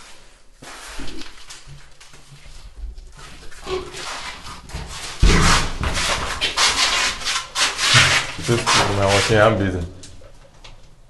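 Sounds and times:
heavy scrape: 0:03.7 - 0:09.8
microphone rubbing against clothing: 0:05.9 - 0:09.6.

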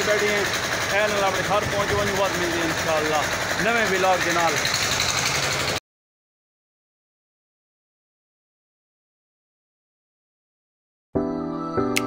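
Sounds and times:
diesel engine running: 0:00.0 - 0:05.8.

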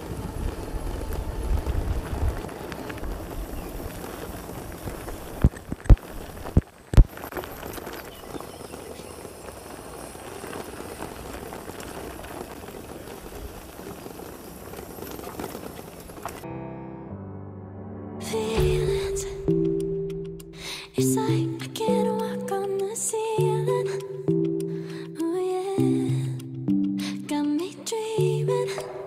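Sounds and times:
bike tyres rumbling on gravel: 0:00.0 - 0:16.5, 0:18.3 - 0:21.9
music: 0:16.4 - 0:29.0.

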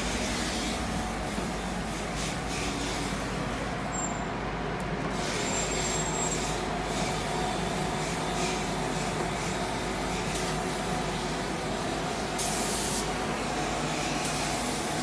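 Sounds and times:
paint spray gun hissing: 0:12.1 - 0:15.0.

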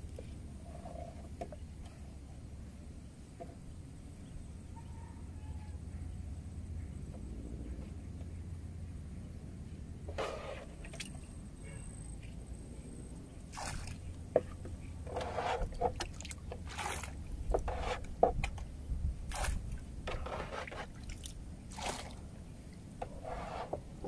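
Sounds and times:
jug scraping boat bottom: 0:10.1 - 0:11.0, 0:14.3 - 0:18.7, 0:19.3 - 0:21.1, 0:23.0 - 0:24.0
water splashing: 0:13.5 - 0:14.2, 0:15.2 - 0:18.0, 0:19.3 - 0:22.4
jug scooping water: 0:13.5 - 0:18.7, 0:19.3 - 0:24.0.

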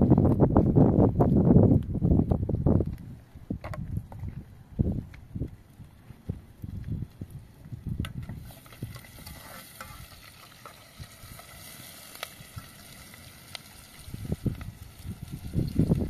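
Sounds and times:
food sizzling in a metal pan: 0:08.4 - 0:16.0.

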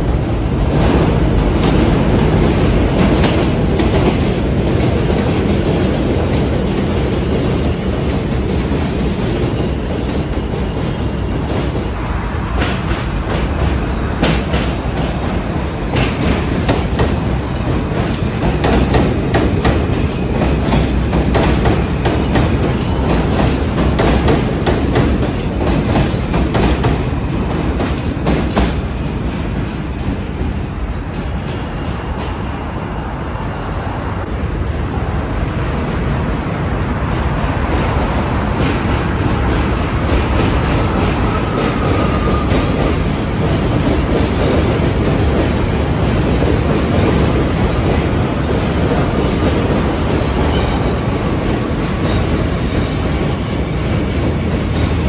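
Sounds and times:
subway train rumbling: 0:00.0 - 0:55.0
wheels clacking over rail joints: 0:12.5 - 0:32.4.

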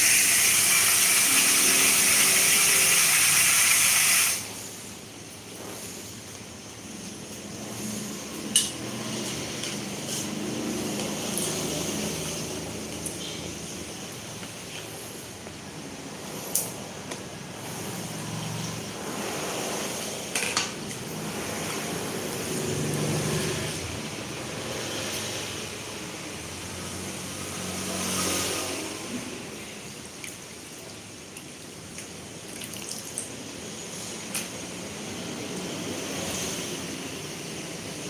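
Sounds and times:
water sloshing and dripping: 0:28.3 - 0:34.6.

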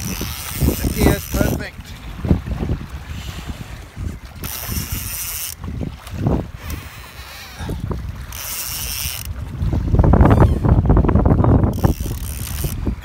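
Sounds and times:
fishing reel ticking: 0:00.0 - 0:01.8, 0:04.4 - 0:05.7, 0:06.6 - 0:09.4, 0:10.2 - 0:13.0
wind buffeting microphone: 0:00.0 - 0:13.0.

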